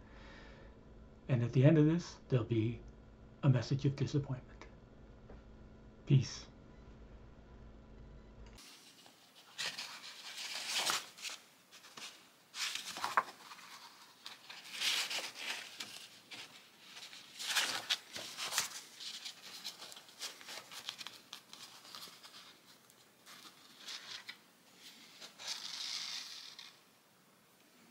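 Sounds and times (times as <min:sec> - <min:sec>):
paper rustling and crinkling: 0:08.6 - 0:26.8.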